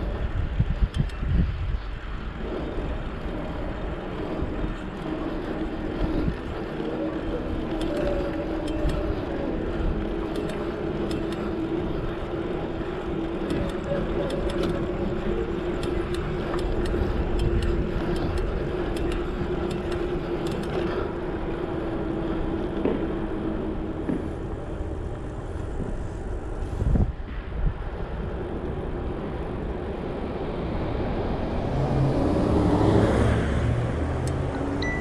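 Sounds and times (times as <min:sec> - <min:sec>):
bicycle bumps: 0:00.0 - 0:27.9
bicycle wind and road noise: 0:00.0 - 0:35.0.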